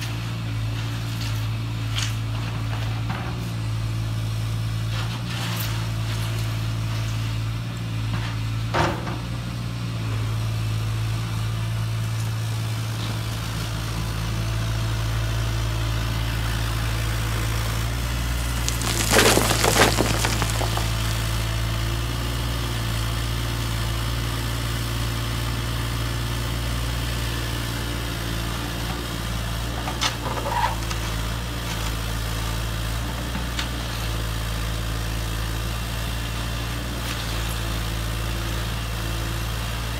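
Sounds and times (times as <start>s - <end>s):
gravel pouring into metal bed: 18.4s - 21.2s
brief clatters: 18.5s - 21.2s.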